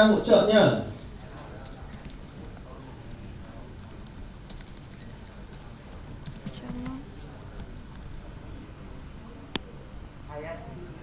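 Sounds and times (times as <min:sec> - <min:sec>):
low room hum: 0:00.0 - 0:11.0
keyboard keys clicking: 0:03.9 - 0:07.0.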